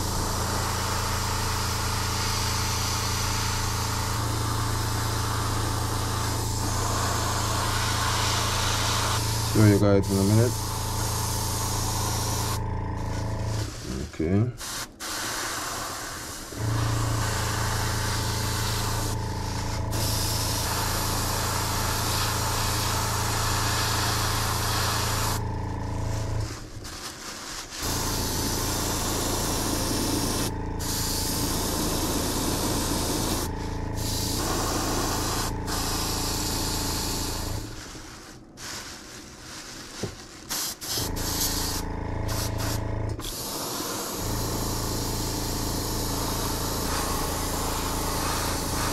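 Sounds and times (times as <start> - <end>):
air compressor humming: 0.0 - 48.9
airbrush spraying hiss: 0.2 - 14.0, 14.6 - 25.4, 26.9 - 45.1, 46.3 - 48.9.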